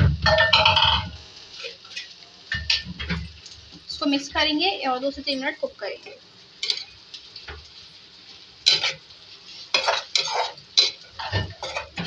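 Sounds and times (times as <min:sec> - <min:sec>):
frying sizzle: 0:00.0 - 0:12.0
metal spoon scraping pan: 0:06.6 - 0:07.0, 0:08.6 - 0:12.0.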